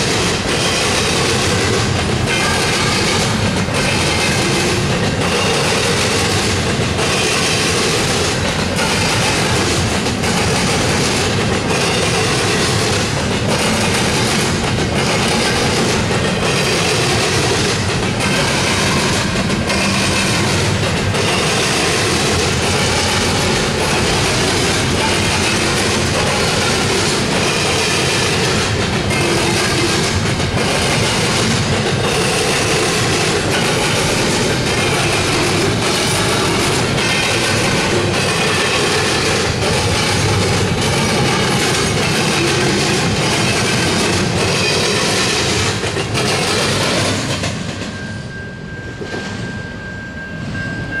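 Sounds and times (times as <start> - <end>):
rail car clatter: 0.0 - 51.0
train wheels on rails: 0.0 - 51.0
steady high-pitched tone: 47.7 - 51.0.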